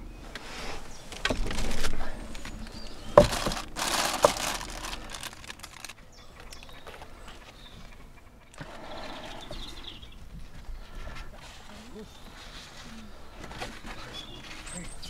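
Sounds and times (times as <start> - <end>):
plastic bag crinkling: 1.3 - 6.6.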